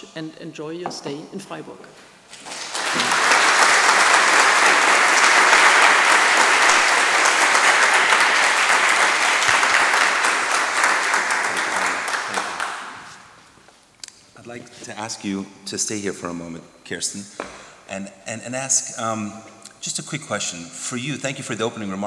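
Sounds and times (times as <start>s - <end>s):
audience applauding: 2.3s - 13.4s.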